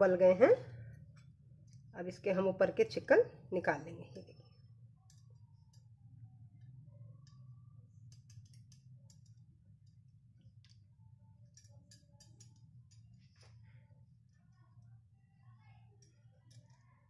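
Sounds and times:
low steady hum: 0.0 - 17.0
metal tongs tapping plate: 8.1 - 9.4, 11.5 - 13.1.

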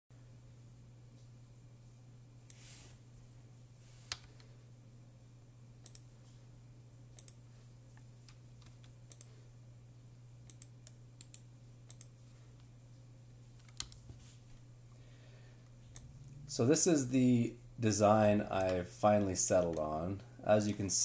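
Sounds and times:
steady low hum: 0.2 - 21.0
computer mouse clicking: 4.1 - 4.5, 5.8 - 6.1, 7.2 - 7.4, 8.0 - 9.3, 10.4 - 12.1, 13.6 - 14.0, 18.6 - 18.8.

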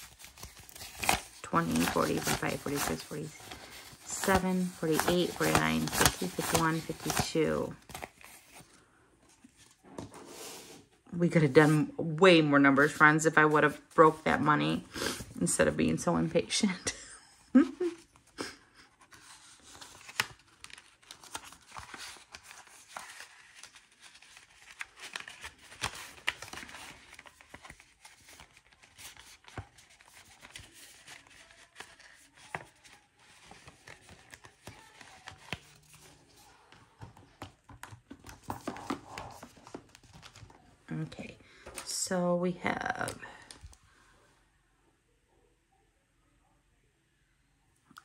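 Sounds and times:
paper rustling and crinkling: 0.0 - 10.8, 18.9 - 40.8.

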